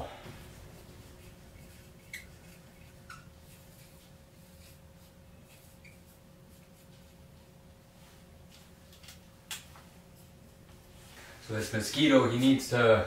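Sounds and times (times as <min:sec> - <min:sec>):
marker squeaking on whiteboard: 0:01.2 - 0:06.9.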